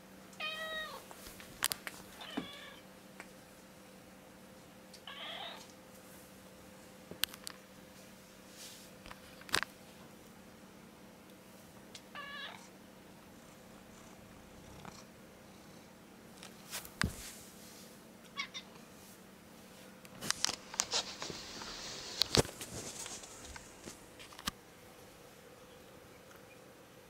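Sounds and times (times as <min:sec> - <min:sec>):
cat meowing: 0:02.2 - 0:02.8, 0:05.1 - 0:05.7, 0:12.2 - 0:12.6
rustling: 0:16.4 - 0:17.9, 0:19.0 - 0:24.5.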